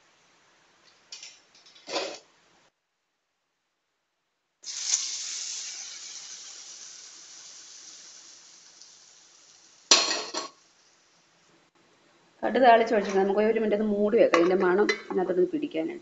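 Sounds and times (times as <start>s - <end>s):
hot oil sizzling in curry: 4.6s - 11.4s.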